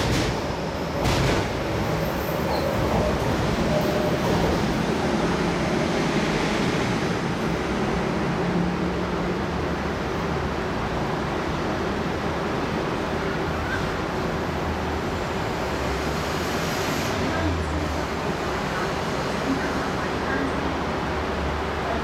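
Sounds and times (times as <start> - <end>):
train running: 0.0 - 22.0.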